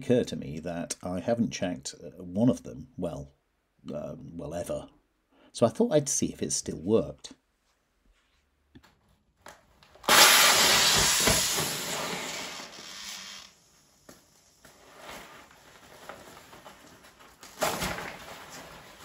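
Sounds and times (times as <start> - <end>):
gas cylinder loud hiss: 10.1 - 13.6
fabric rustling: 14.6 - 19.0.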